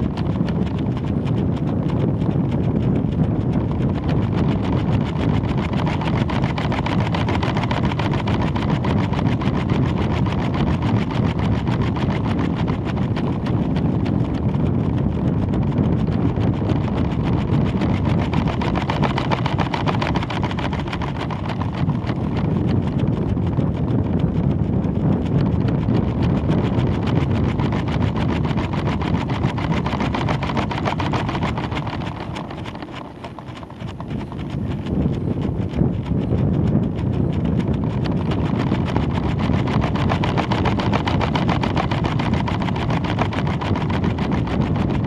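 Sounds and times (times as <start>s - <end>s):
airflow rushing: 0.0s - 45.0s
box rattling: 17.6s - 22.5s, 27.4s - 36.4s.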